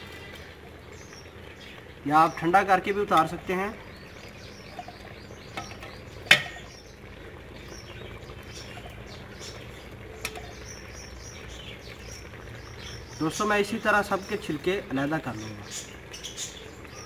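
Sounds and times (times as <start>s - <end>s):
metal skimmer clinking on pot: 4.6s - 6.8s, 10.2s - 10.6s.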